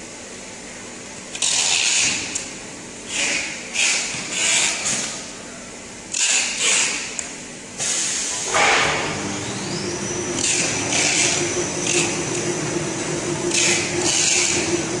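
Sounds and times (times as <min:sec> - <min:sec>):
machine humming with high whine: 0:08.1 - 0:15.0.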